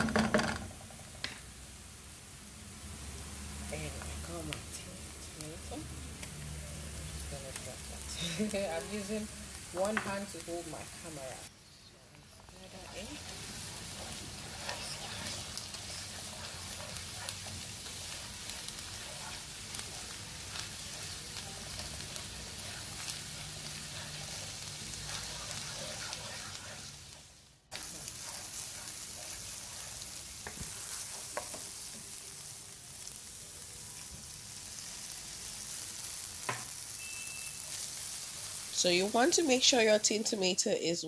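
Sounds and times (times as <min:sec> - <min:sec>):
hot oil sizzling in a pan: 0:00.0 - 0:40.8
wooden spoon stirring and scraping: 0:12.3 - 0:33.2.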